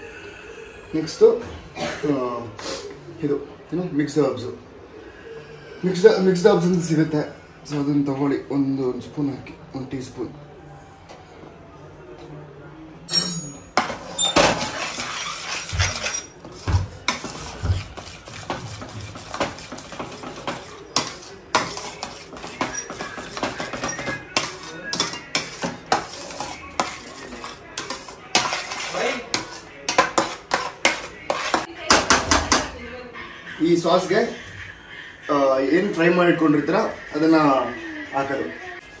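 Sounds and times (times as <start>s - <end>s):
metal spoon scraping a pot: 13.1s - 32.6s.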